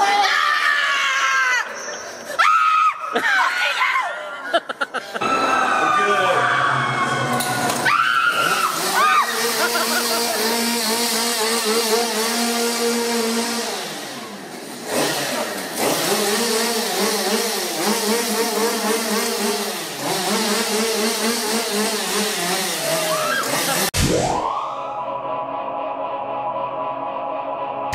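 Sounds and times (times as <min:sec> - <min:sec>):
chainsaw engine revving: 0:07.3 - 0:24.0.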